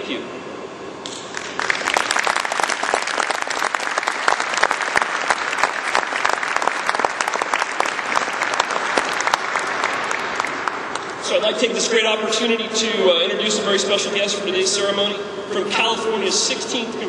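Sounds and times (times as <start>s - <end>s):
audience applauding: 1.3s - 11.2s.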